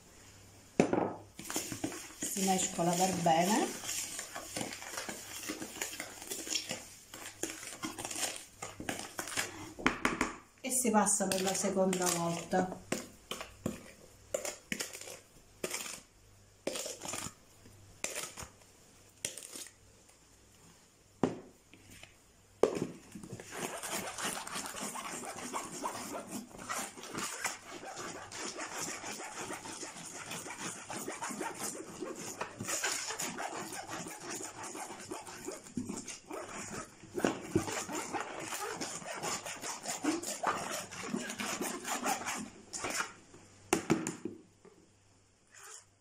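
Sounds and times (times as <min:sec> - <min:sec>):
plastic bowl knocking on sieve: 0:00.8 - 0:01.2, 0:09.8 - 0:10.4
scratchy rubbing through mesh: 0:01.4 - 0:06.8, 0:23.4 - 0:43.1.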